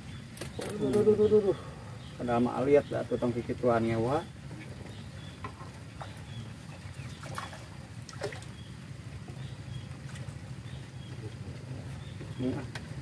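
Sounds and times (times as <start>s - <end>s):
fish splashing: 5.0s - 11.2s.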